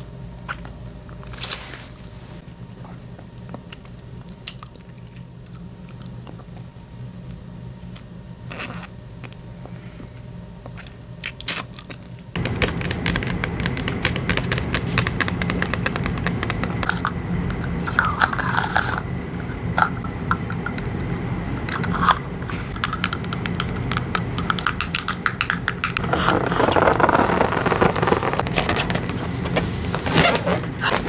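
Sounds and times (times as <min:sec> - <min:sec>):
plastic packaging crinkling: 0:25.8 - 0:31.0.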